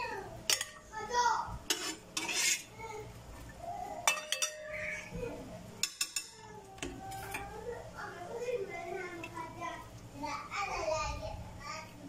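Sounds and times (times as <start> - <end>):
utensil clinking against glass dish: 4.0 - 4.8.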